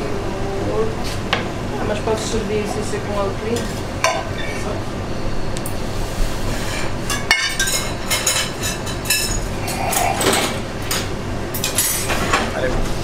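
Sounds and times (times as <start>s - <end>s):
steady low hum: 0.0s - 13.0s
dishes and cutlery clinking: 7.1s - 12.5s.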